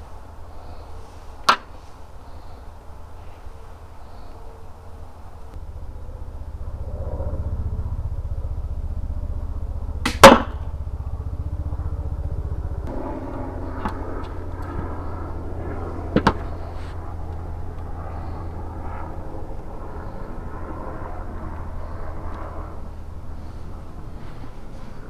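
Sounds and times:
steady low hum: 0:00.0 - 0:25.0
crossbow snap: 0:10.1 - 0:10.6.

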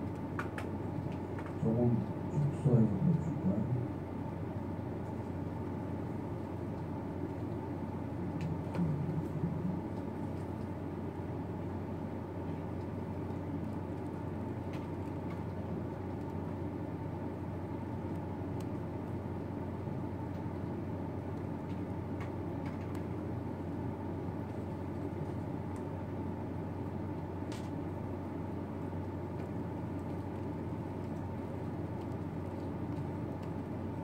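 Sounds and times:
low room hum: 0:00.0 - 0:34.0
keyboard and mouse clicks: 0:00.1 - 0:01.6.

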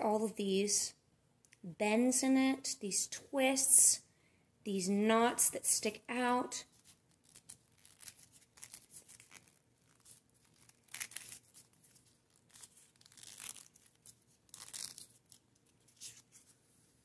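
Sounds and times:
cardstock crinkling and rustling: 0:06.7 - 0:16.6.

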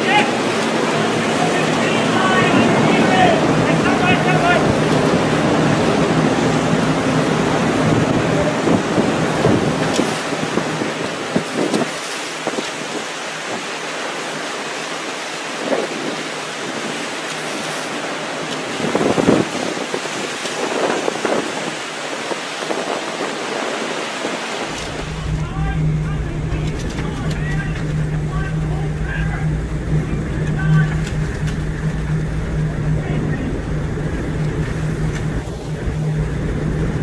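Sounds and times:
strong wind on microphone: 0:00.0 - 0:14.5, 0:15.4 - 0:37.0
rough sea washing: 0:00.0 - 0:37.0
low hum: 0:24.7 - 0:37.0.

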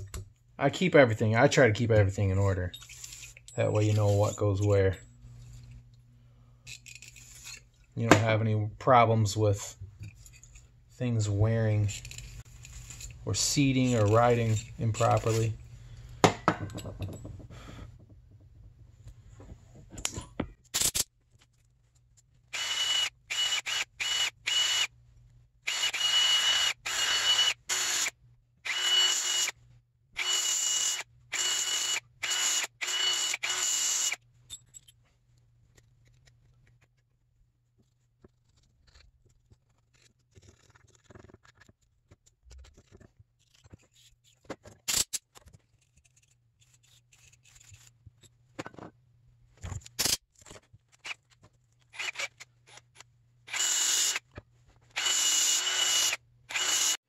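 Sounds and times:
handling of parts: 0:02.4 - 0:06.0, 0:06.6 - 0:08.4, 0:09.8 - 0:22.4, 0:34.2 - 0:53.1
drill sander whining: 0:25.7 - 0:28.1, 0:28.7 - 0:29.5, 0:30.2 - 0:34.2, 0:55.0 - 0:57.0.

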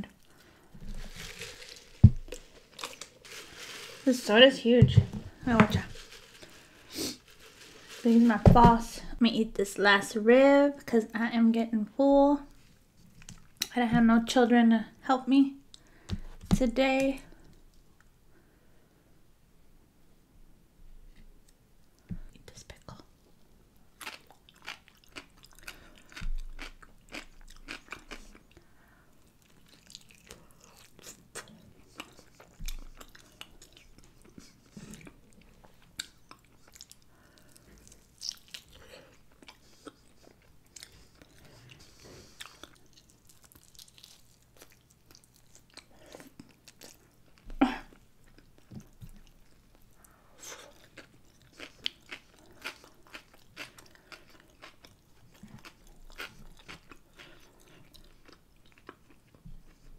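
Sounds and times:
crunchy bites and wet chewing: 0:24.0 - 0:28.6.

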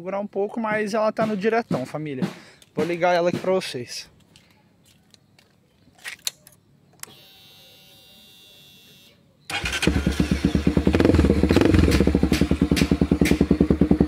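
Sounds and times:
motorcycle engine popping idle: 0:09.5 - 0:14.0.

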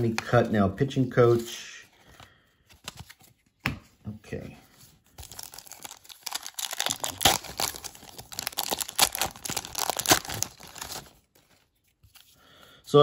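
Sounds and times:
plastic wrapper crinkling: 0:05.1 - 0:12.2.

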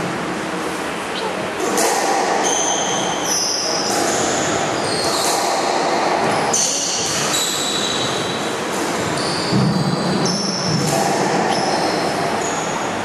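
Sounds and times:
squash ball struck: 0:08.8 - 0:11.6.

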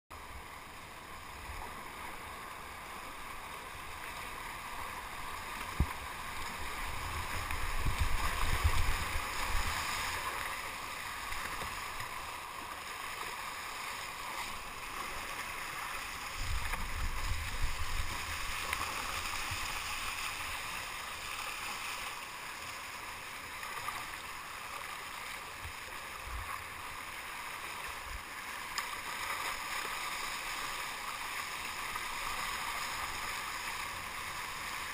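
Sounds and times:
rapids rushing and splashing: 0:00.2 - 0:34.9
paddle splashes: 0:03.0 - 0:34.9
wind buffeting microphone: 0:06.9 - 0:09.8, 0:16.4 - 0:18.4.

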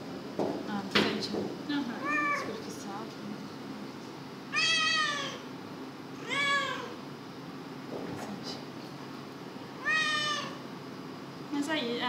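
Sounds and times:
cat meowing: 0:02.0 - 0:02.5, 0:04.5 - 0:05.4, 0:06.2 - 0:07.0, 0:09.8 - 0:10.6.

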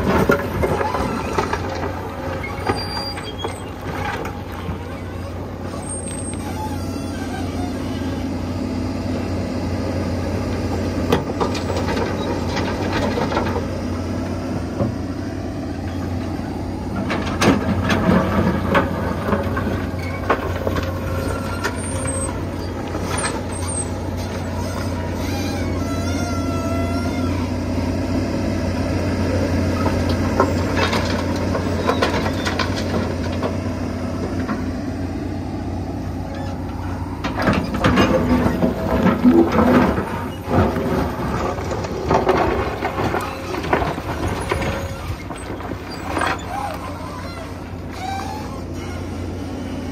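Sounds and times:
hydraulic whines: 0:00.0 - 0:09.3, 0:19.8 - 0:28.1, 0:29.6 - 0:49.9
excavator diesel engine running: 0:00.0 - 0:49.9
rock clattering: 0:37.5 - 0:46.8.

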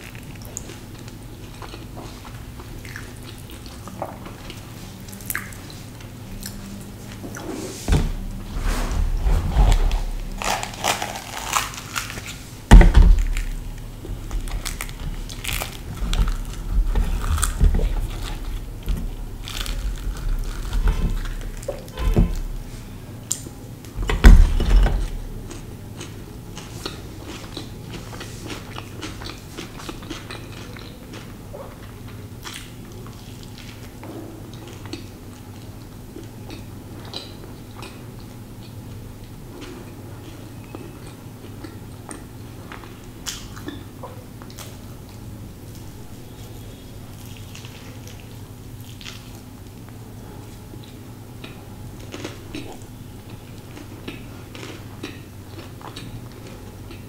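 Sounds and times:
crackly rustling: 0:00.0 - 0:23.0
dull thumps: 0:07.9 - 0:10.4, 0:12.7 - 0:22.6
bread tearing and chewing: 0:09.6 - 0:22.5, 0:47.2 - 0:50.0.

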